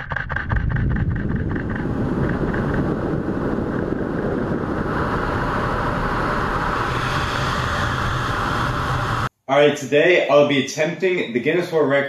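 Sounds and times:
wind rushing over microphone: 0.0 - 9.3.

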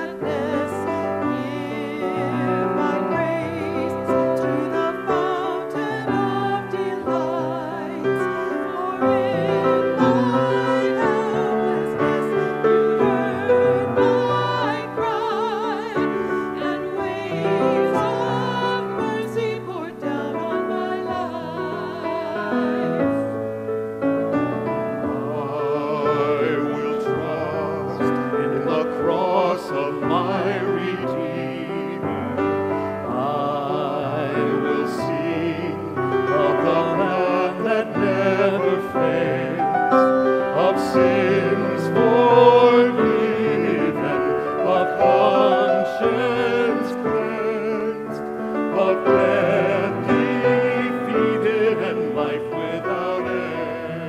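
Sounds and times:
group singing worship song: 0.0 - 23.6, 24.3 - 54.0.

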